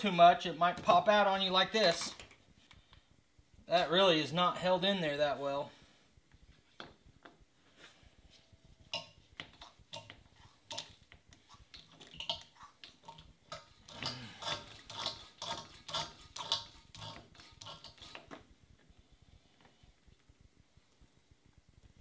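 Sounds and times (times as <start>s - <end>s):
hand pump clicking and slurping: 8.9s - 18.4s.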